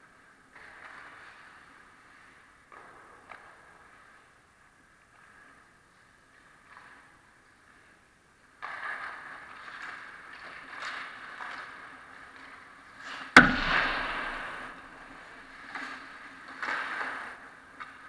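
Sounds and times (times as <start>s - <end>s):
skates scraping on ice: 0.0s - 18.0s
hockey puck striking: 13.1s - 17.3s.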